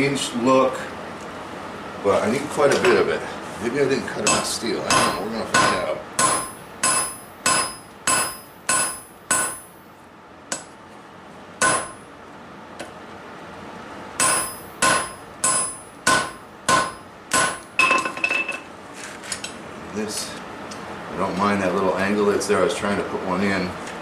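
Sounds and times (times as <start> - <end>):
hammer striking steel on anvil: 4.2 - 9.7, 11.6 - 12.1, 14.2 - 18.5.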